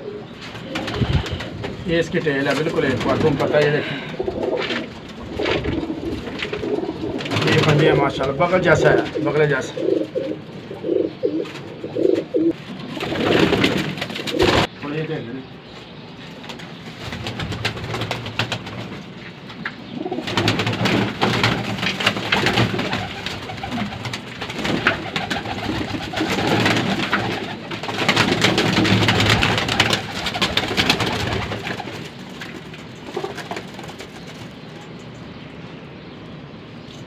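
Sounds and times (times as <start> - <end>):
pigeons cooing: 0.0 - 14.7, 19.8 - 32.2, 33.0 - 34.7.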